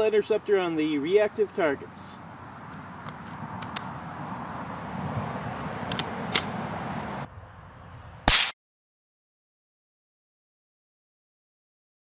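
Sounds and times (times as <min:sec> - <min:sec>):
outdoor background noise: 0:00.0 - 0:08.6
sharp crack: 0:05.9 - 0:06.6, 0:08.3 - 0:08.6
rifle shot: 0:08.3 - 0:08.6.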